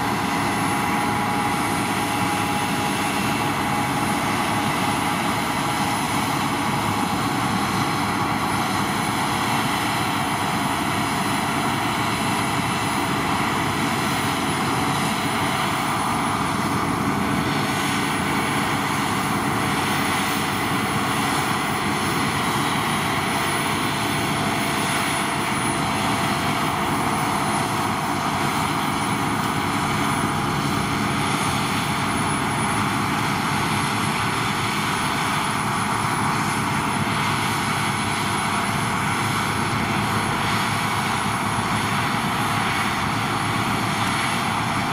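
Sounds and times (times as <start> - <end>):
combine harvester droning: 0.0 - 44.9.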